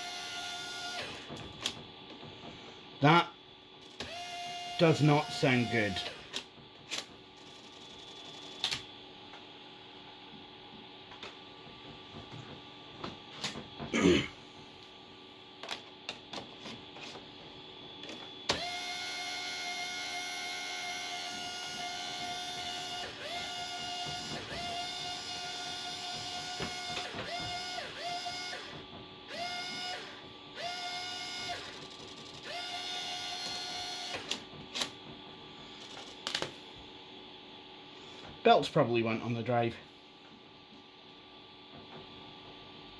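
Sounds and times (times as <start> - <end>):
mechanical whirring whine: 0.0 - 38.4.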